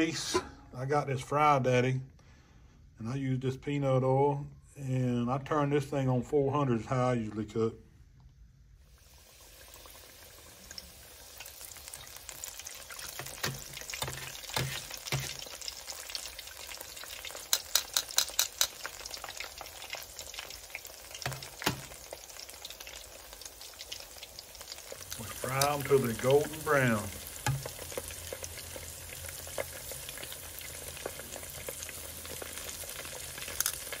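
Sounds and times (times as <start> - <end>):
food sizzling in deep fryer: 8.8 - 34.0.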